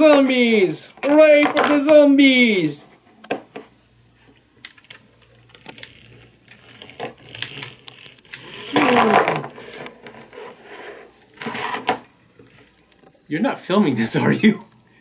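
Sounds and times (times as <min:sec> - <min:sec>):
vinyl figures knocking on tabletop: 0:01.4 - 0:01.8.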